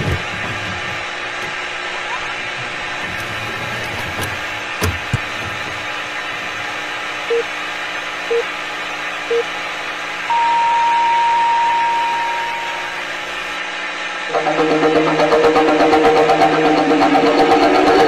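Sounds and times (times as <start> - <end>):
time signal beeps: 10.3 - 13.0.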